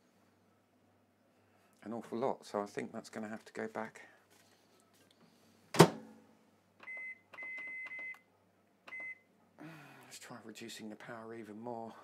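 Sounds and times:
microwave door shutting: 5.8s - 6.0s
control panel beeps: 6.8s - 8.2s, 8.9s - 9.2s.

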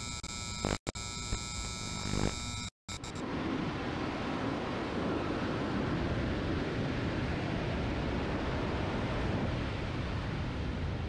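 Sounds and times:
surf breaking on beach: 3.2s - 11.0s
wind on microphone: 3.2s - 11.0s.

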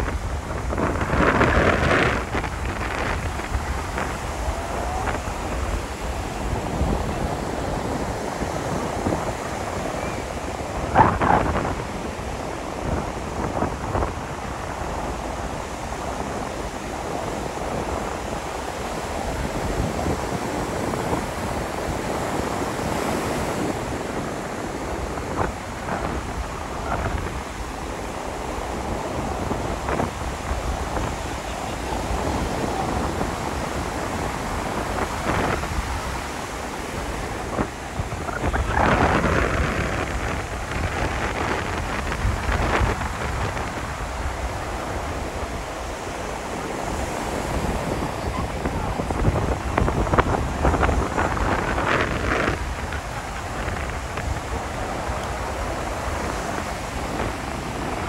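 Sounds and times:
surf washing onto beach: 0.0s - 58.0s
wind buffeting microphone: 0.0s - 58.0s.

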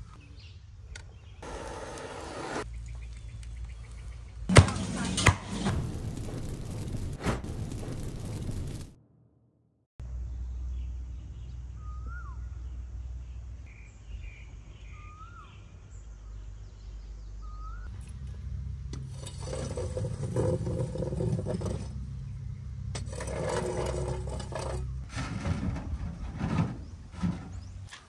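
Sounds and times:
rake scraping through ash: 1.4s - 8.8s, 19.0s - 28.0s
low steady rumble: 3.1s - 9.0s, 15.9s - 27.9s
faint bird chirps: 10.4s - 12.8s, 13.7s - 18.0s.

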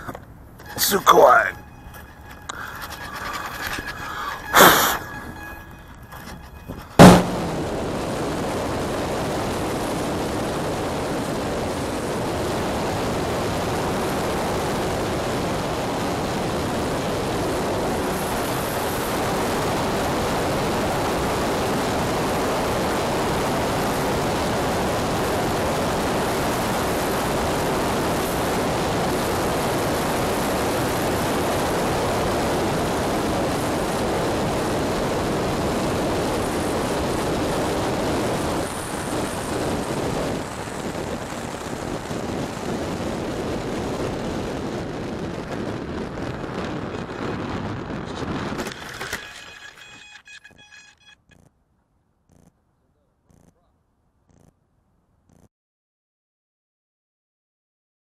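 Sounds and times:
faint steady tone: 0.0s - 8.6s
wind rushing over airframe: 7.0s - 19.6s
electric motor and propeller: 48.6s - 51.5s.

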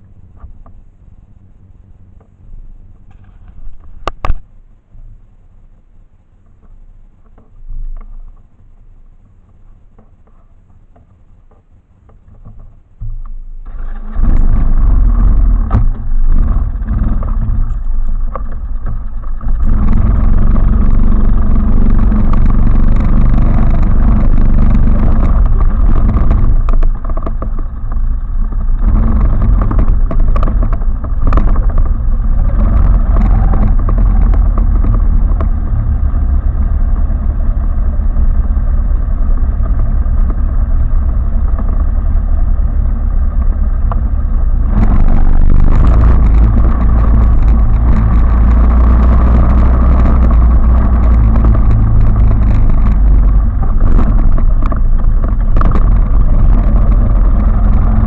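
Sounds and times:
quad engine starting and running: 11.9s - 58.0s.

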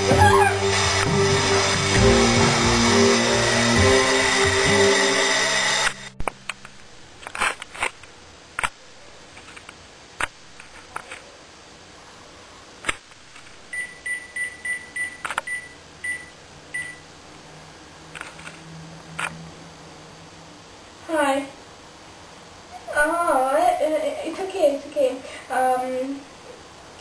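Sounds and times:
music: 0.0s - 6.3s
phone keypad beeps: 13.8s - 17.0s.

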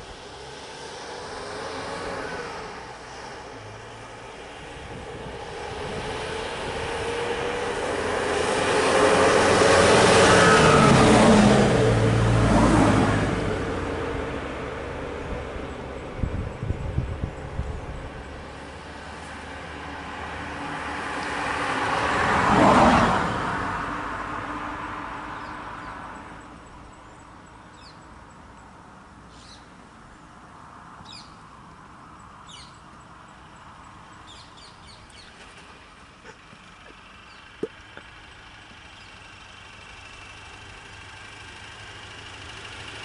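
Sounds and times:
car driving past: 0.0s - 16.2s, 17.3s - 26.4s
small birds chirping: 25.4s - 30.3s, 31.0s - 31.5s, 32.2s - 39.3s.

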